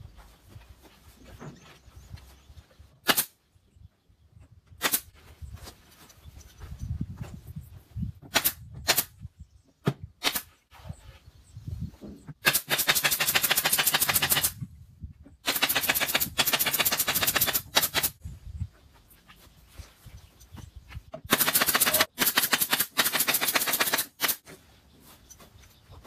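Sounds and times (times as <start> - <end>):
nail gun firing into wood: 3.0 - 3.3, 4.8 - 5.1, 8.3 - 9.1, 10.2 - 10.5, 12.4 - 14.6, 15.4 - 18.2, 21.3 - 24.4.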